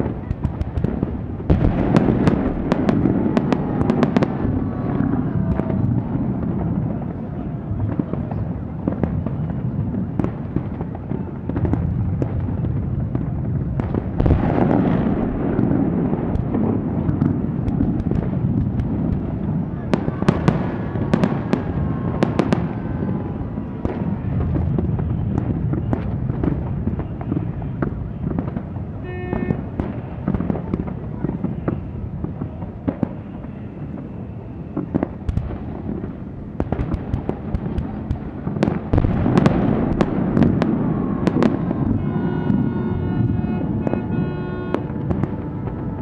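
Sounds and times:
fireworks cracks and bangs: 0.0s - 46.0s
continuous low din: 39.7s - 46.0s.

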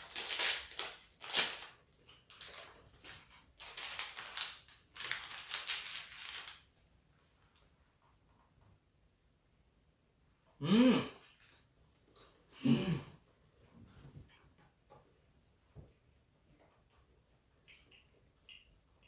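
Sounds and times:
plastic wrapping crinkling: 0.0s - 6.8s.

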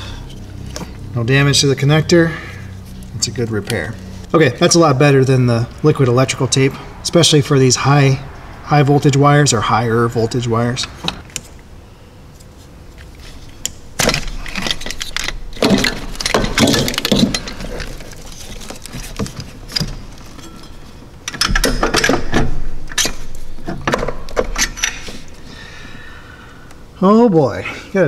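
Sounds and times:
plastic and metal parts clicking and rattling: 13.6s - 20.7s.

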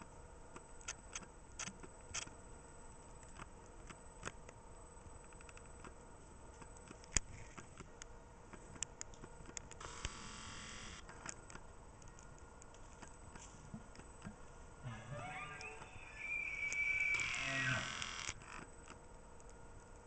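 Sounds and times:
faint irregular clicks: 0.5s - 10.3s, 10.9s - 14.4s, 18.0s - 20.0s
low hiss: 2.3s - 20.0s.

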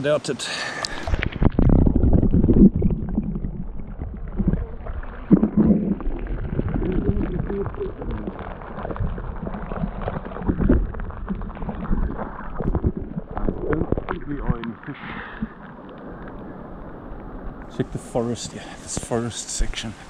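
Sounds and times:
underwater gurgling of moving water: 0.8s - 18.8s
underwater clicks and knocks: 0.9s - 14.8s.

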